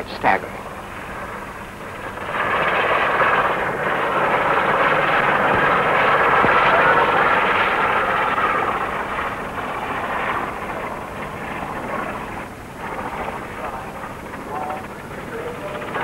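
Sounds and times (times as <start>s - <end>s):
helicopter jet rushing noise: 0.0s - 16.0s.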